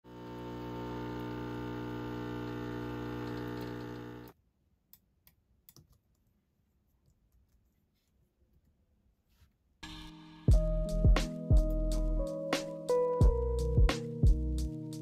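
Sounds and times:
espresso machine pump humming: 0:00.1 - 0:04.3
keyboard and mouse clicks: 0:04.9 - 0:06.3.

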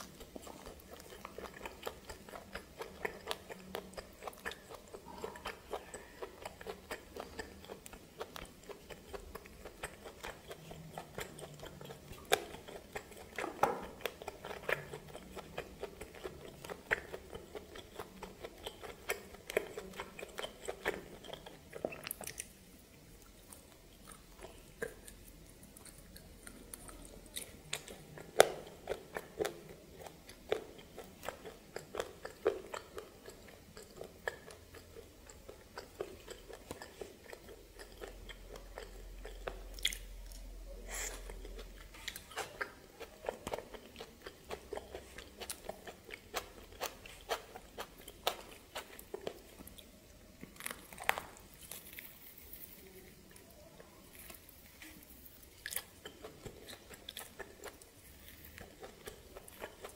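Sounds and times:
person chewing crunchily: 0:00.0 - 0:59.9.

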